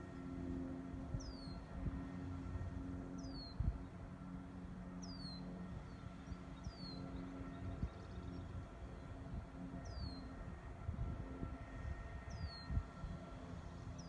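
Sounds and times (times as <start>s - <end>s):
low wind rumble: 0.0s - 14.0s.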